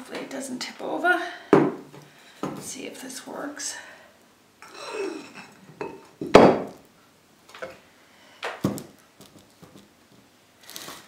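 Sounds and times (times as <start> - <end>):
objects knocking on wooden table: 5.8 - 6.8.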